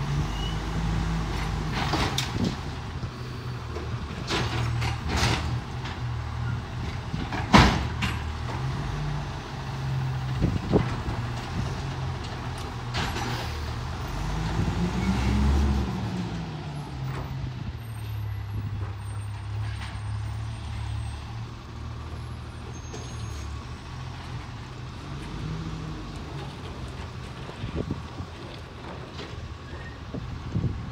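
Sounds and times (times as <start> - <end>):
garbage truck diesel engine: 0.0 - 30.9.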